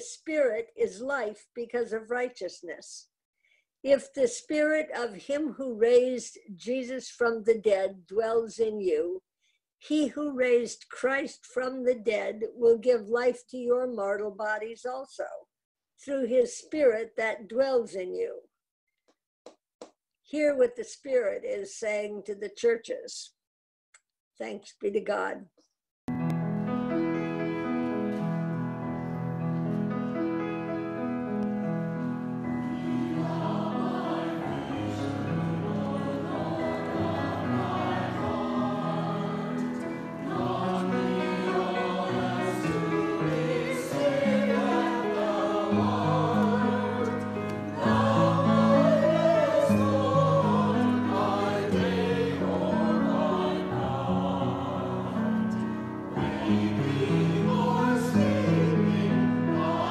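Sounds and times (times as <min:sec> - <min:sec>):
piano accompaniment: 0:26.1 - 0:59.9
choir singing: 0:32.0 - 0:59.9.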